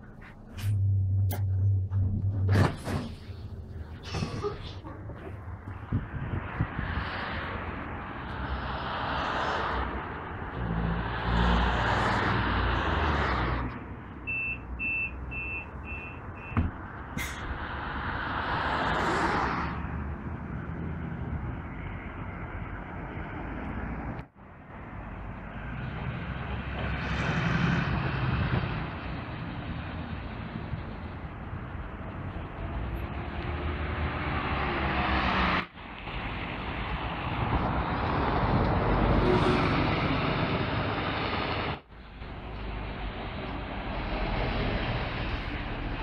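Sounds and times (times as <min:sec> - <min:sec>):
bus engine running: 0:00.0 - 0:07.0
bus driving past: 0:00.0 - 0:46.0
road traffic: 0:00.0 - 0:46.0
bus doors knocking shut: 0:16.5 - 0:16.8
bus pulling away: 0:31.8 - 0:46.0.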